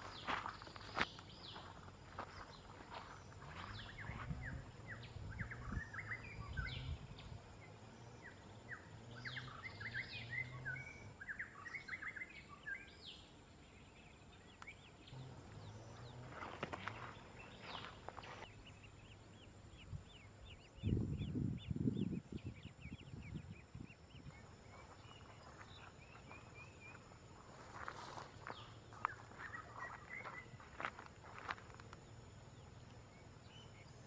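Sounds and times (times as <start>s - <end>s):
high bird chirps: 14.5s - 31.5s.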